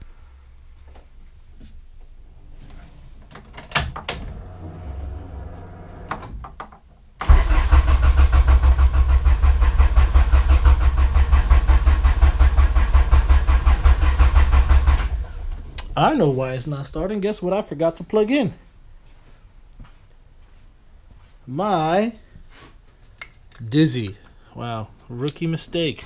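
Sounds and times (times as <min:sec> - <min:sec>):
engine cranking on starter motor: 0:07.2 - 0:15.7.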